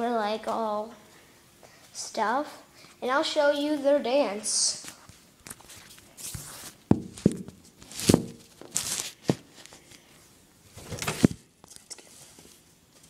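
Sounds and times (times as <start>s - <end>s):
cloth rustling: 4.9s - 10.0s.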